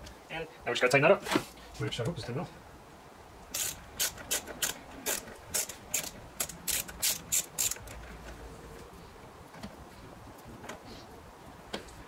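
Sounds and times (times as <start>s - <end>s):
hand ratchet clicking: 3.5s - 8.0s.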